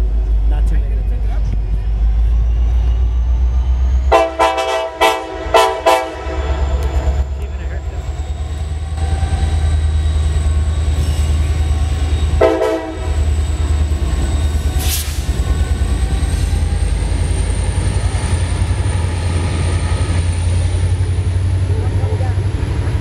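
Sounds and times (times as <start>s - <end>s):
diesel locomotives rumbling: 0.0s - 23.0s
train horn blast: 4.1s - 7.1s, 12.4s - 13.3s
brief hiss: 14.8s - 15.3s.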